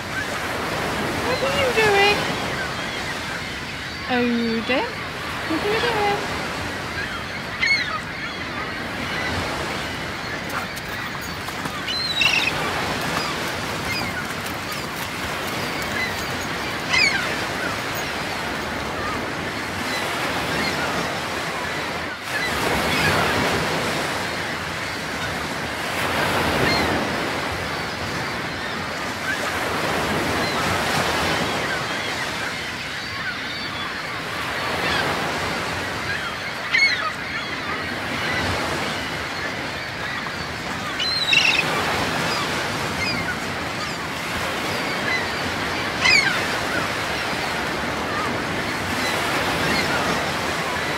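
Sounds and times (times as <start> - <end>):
surf rushing: 0.0 - 33.3
wind: 0.0 - 50.9.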